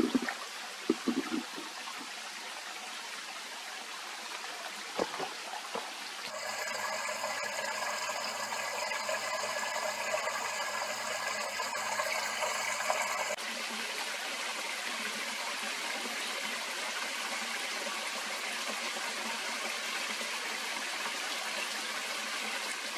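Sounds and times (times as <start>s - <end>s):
stream running over stones: 0.0s - 22.9s.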